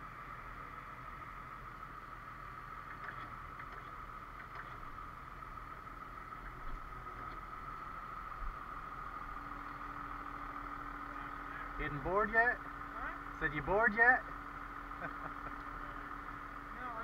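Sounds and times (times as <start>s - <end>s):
truck engine rumbling: 0.0s - 17.0s.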